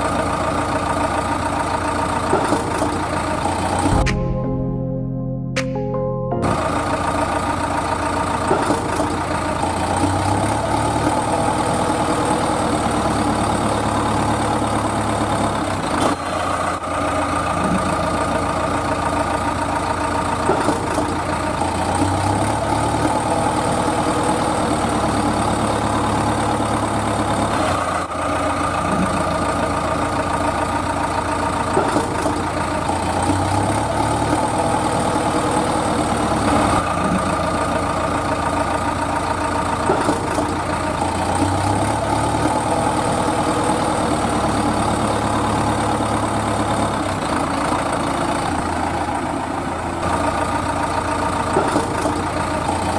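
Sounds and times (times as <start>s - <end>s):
truck engine idling: 0.0s - 4.1s, 6.4s - 52.9s.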